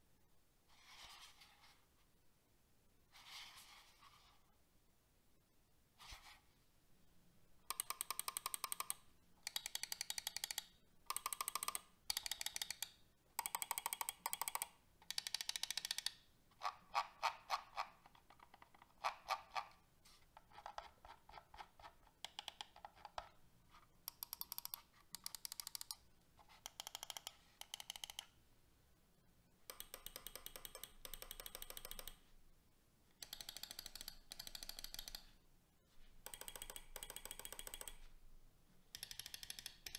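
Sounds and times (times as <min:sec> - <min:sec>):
mouse buttons clicking rapidly: 0:07.7 - 0:19.8, 0:20.5 - 0:23.4, 0:24.0 - 0:28.4, 0:29.7 - 0:32.3, 0:33.2 - 0:35.4, 0:36.2 - 0:38.1, 0:38.9 - 0:39.9.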